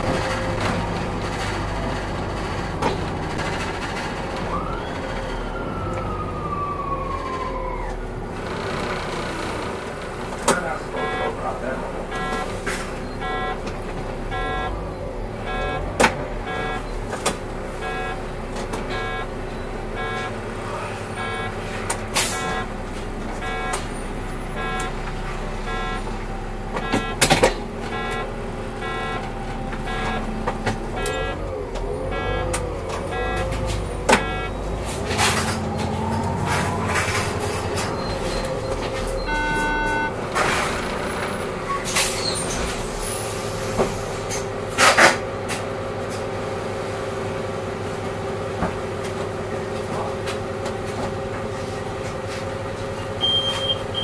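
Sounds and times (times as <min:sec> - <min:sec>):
bus engine and road noise: 0:00.0 - 0:54.0
regular beeping: 0:10.9 - 0:13.7, 0:14.3 - 0:17.1, 0:17.7 - 0:22.8, 0:23.4 - 0:40.2
short beep: 0:11.0 - 0:11.4, 0:12.1 - 0:13.6, 0:14.3 - 0:14.8, 0:15.5 - 0:15.8, 0:16.5 - 0:16.9, 0:17.8 - 0:18.2, 0:18.9 - 0:20.4, 0:21.2 - 0:22.7, 0:23.4 - 0:23.9, 0:24.6 - 0:25.0, 0:25.6 - 0:26.1, 0:26.8 - 0:27.3, 0:27.9 - 0:29.3, 0:29.9 - 0:30.3, 0:30.9 - 0:31.4, 0:32.1 - 0:35.5, 0:36.5 - 0:40.2, 0:53.2 - 0:54.0.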